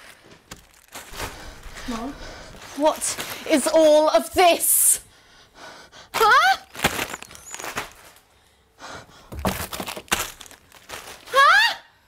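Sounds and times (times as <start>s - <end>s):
plastic wrappers crinkling: 0.0s - 4.3s, 6.2s - 8.4s, 9.3s - 11.5s.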